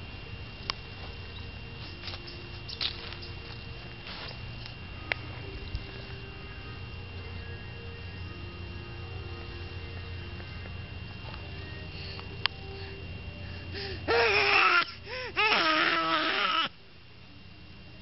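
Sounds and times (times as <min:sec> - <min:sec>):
baby crying: 0:13.8 - 0:16.7.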